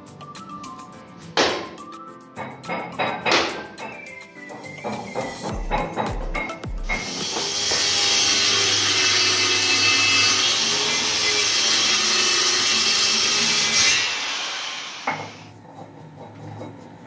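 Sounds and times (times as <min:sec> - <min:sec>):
power tool rasping wood: 0:06.9 - 0:15.5.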